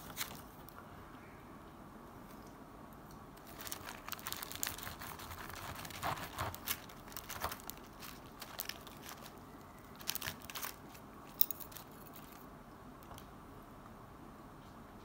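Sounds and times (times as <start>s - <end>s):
paper liner crinkling: 0.0s - 0.8s, 3.4s - 12.5s
knife and fork cutting crispy food: 3.8s - 9.3s.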